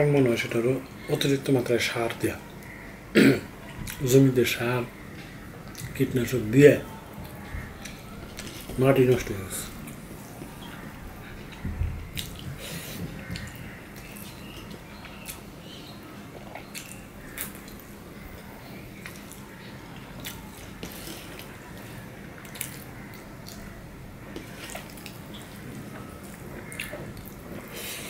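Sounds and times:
steady low hum: 0.0 - 28.0
wet chewing and mouth clicks: 7.1 - 8.8, 9.8 - 27.7.

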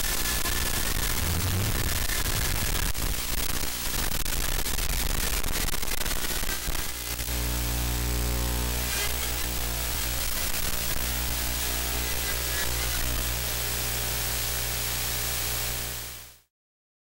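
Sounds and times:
static hiss: 0.0 - 16.4
faint whine drifting in pitch: 1.2 - 2.6.

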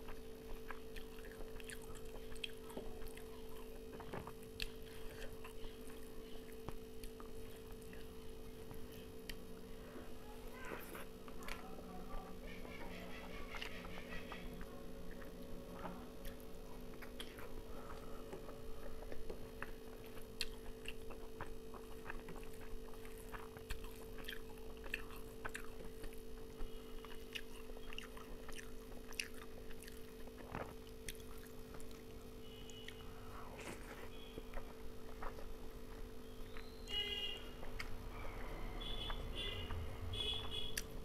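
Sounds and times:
chewing and wet mouth clicks: 0.1 - 5.6, 18.3 - 32.1.

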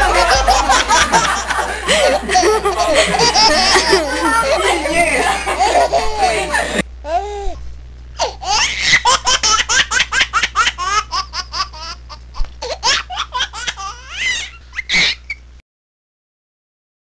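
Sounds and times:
person laughing high-pitched: 0.0 - 6.8.

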